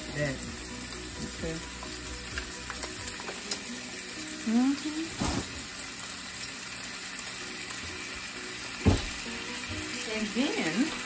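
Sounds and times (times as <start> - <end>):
food sizzling in hot oil: 0.0 - 11.0
knock: 8.8 - 9.2.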